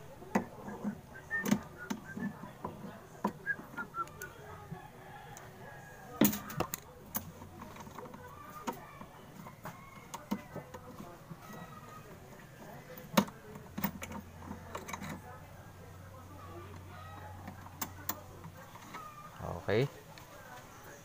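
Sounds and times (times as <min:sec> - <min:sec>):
plastic parts clicking and knocking: 0:00.2 - 0:04.3, 0:06.1 - 0:12.0, 0:12.6 - 0:15.4.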